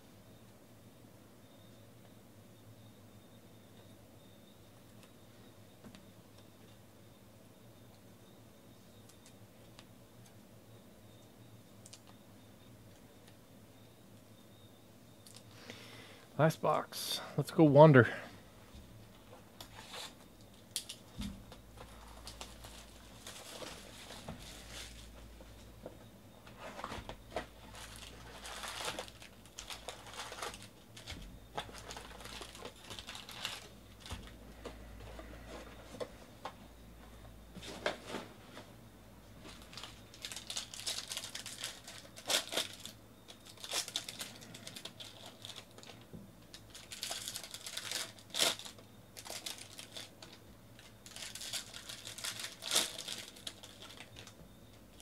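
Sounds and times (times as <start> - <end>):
foil wrappers crinkling: 21.8 - 25.2, 26.6 - 34.4, 39.5 - 54.4
foil packs tearing open: 22.1 - 25.1, 27.4 - 34.2, 39.6 - 46.0, 46.6 - 54.4.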